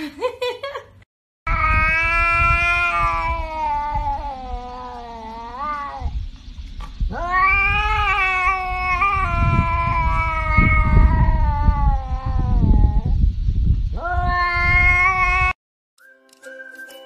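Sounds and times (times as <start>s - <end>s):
cat yowling: 1.5s - 6.2s, 7.1s - 13.2s, 14.0s - 15.6s.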